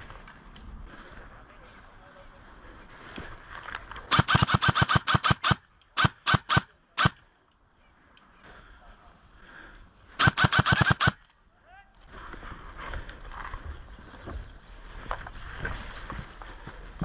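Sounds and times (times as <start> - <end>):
airsoft rifle firing: 4.1 - 7.2, 10.2 - 11.2.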